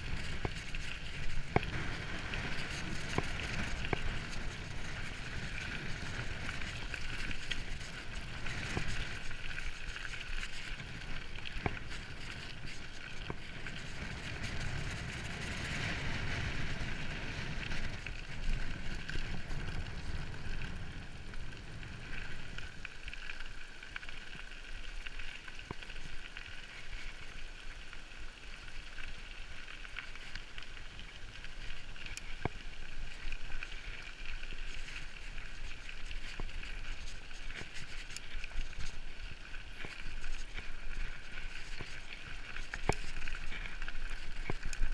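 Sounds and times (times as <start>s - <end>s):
bike clicks and rattles: 0.0s - 44.9s
bike tyre rumble: 0.0s - 44.9s
wind rushing over microphone: 1.3s - 7.0s, 13.5s - 22.6s.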